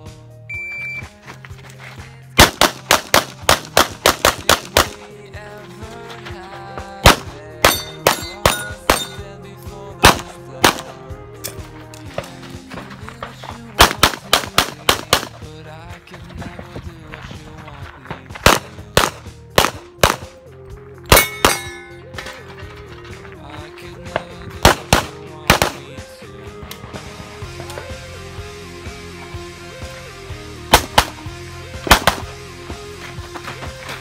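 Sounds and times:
background music: 0.0 - 34.0
pistol shots: 2.4 - 5.1, 7.0 - 9.3, 10.0 - 11.1, 13.8 - 15.5, 18.4 - 20.4, 21.1 - 21.9, 24.6 - 26.0, 30.7 - 32.4.

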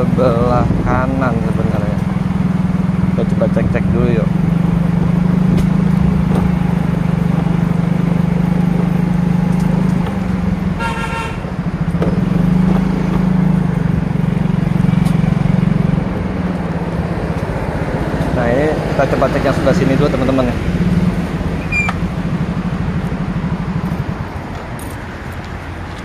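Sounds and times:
motorcycle engine running: 0.0 - 24.9
vehicle horn toot: 10.8 - 11.5.

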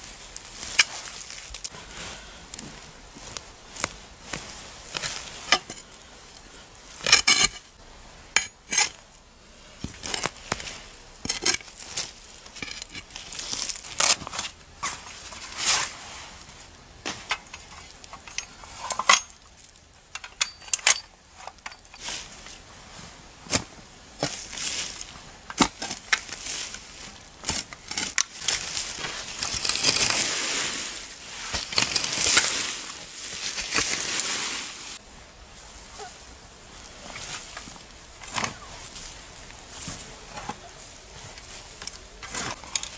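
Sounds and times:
shovel digging soil: 3.8 - 6.0, 7.0 - 7.7, 8.4 - 9.0, 9.8 - 16.0, 23.5 - 35.0, 36.9 - 42.9.

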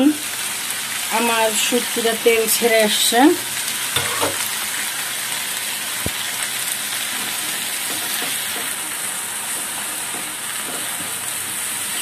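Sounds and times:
fish masala sizzling in a frying pan: 0.0 - 12.0
spatula stirring in a pan: 7.0 - 12.0.

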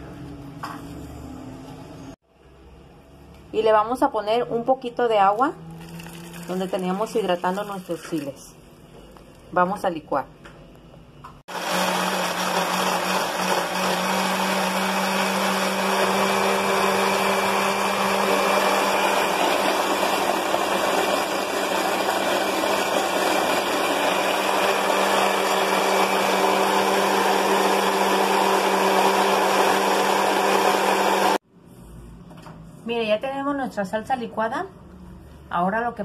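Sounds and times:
blender running: 5.7 - 7.7, 11.5 - 31.4.

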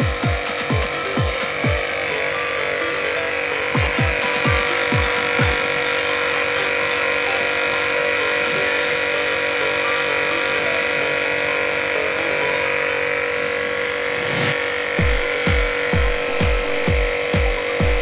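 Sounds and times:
pressure washer whining: 0.0 - 18.0.

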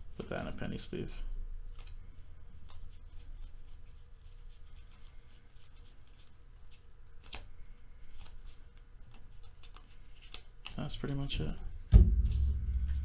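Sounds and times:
cards flicking and rubbing: 1.7 - 11.2.

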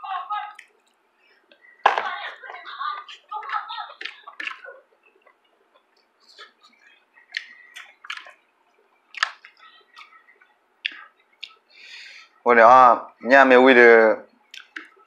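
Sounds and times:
person chewing and lip smacking: 4.0 - 11.7, 14.4 - 15.0.

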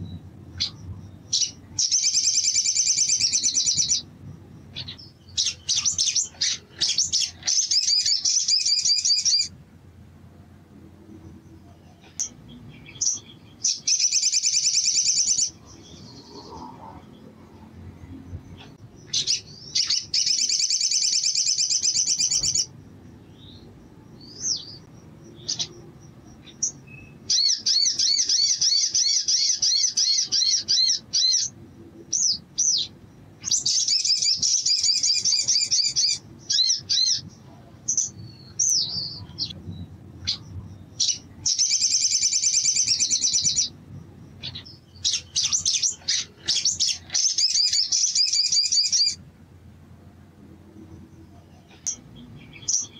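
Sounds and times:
bird chirps: 0.0 - 9.6, 11.2 - 49.2, 50.9 - 52.9
bird singing rapid trills: 0.0 - 9.6, 11.2 - 49.2, 50.9 - 52.9.

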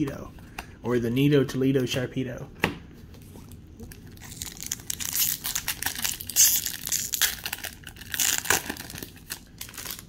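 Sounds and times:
foil wrapper crinkling and tearing: 3.8 - 10.0.

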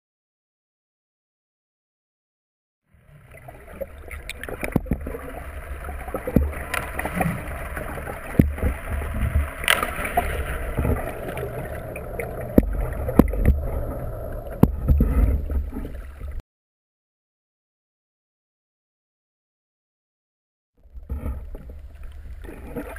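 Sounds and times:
muffled underwater noise: 2.9 - 16.4
low rumble: 3.0 - 16.4
sharp clicks and knocks: 8.3 - 10.2, 12.2 - 13.8, 14.5 - 16.0.

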